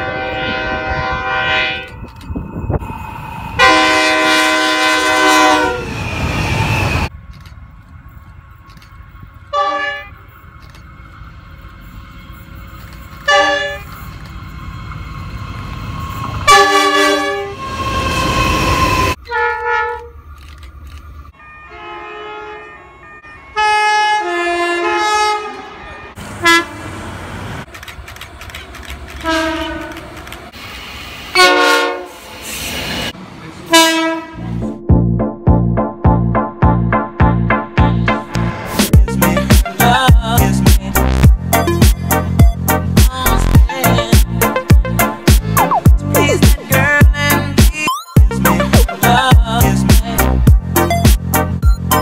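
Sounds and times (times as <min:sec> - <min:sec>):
train horn blasts: 0:00.0 - 0:02.0, 0:03.6 - 0:05.9, 0:09.5 - 0:10.2, 0:13.2 - 0:13.9, 0:16.4 - 0:20.2, 0:21.4 - 0:26.8, 0:29.2 - 0:30.0, 0:31.3 - 0:32.3, 0:33.7 - 0:34.9
passing train rumble: 0:00.0 - 0:47.6, 0:48.3 - 0:52.0.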